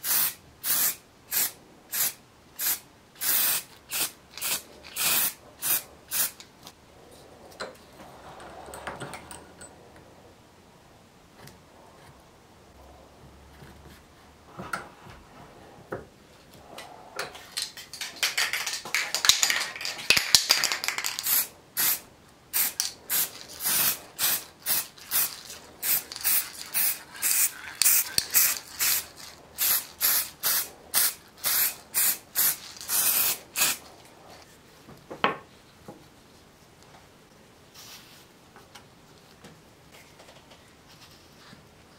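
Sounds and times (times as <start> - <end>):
spray paint can spraying: 0.0 - 6.4, 17.9 - 33.8.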